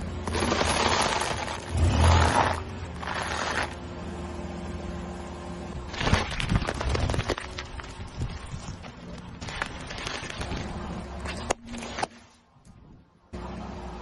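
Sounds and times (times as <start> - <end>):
tyre crushing crunchy food: 0.2 - 3.8
sharp crackles: 5.9 - 12.1.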